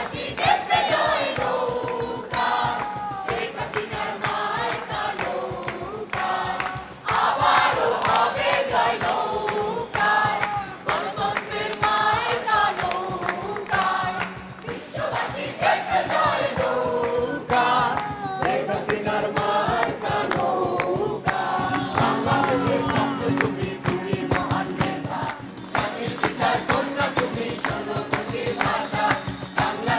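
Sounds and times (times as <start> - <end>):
crowd singing together: 0.0 - 29.9
rhythmic hand clapping: 0.0 - 29.9
strummed acoustic guitars: 17.2 - 29.9.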